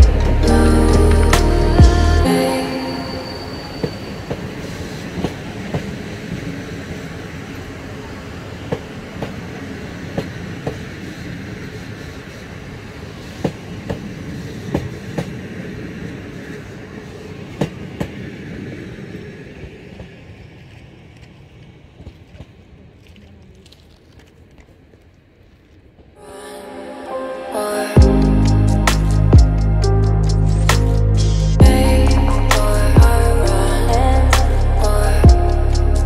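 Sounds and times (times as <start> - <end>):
train wheels rumbling on rail: 3.5 - 26.2.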